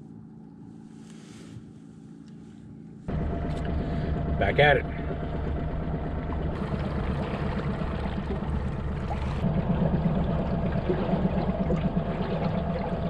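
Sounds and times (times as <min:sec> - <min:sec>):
boat motor humming: 0:00.0 - 0:13.0
water splashing along hull: 0:02.6 - 0:13.0.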